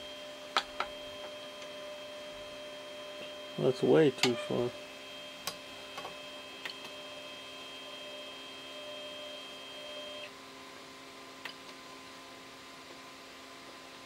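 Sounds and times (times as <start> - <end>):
thin high whine: 0.0 - 10.3
printer humming: 0.0 - 10.4.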